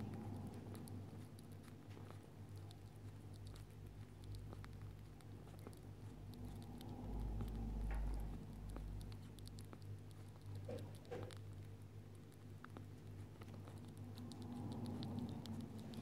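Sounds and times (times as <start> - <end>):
rat clicking and scratching: 0.0 - 16.0
steady low hum: 0.0 - 16.0
low rumble: 5.6 - 9.5.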